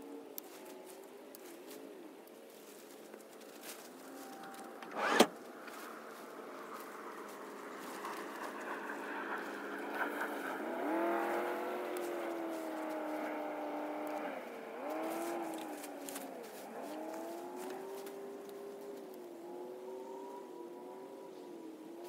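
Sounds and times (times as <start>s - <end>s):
engine running: 0.0s - 22.0s
tarp rustling and crinkling: 0.4s - 8.7s, 14.8s - 19.2s.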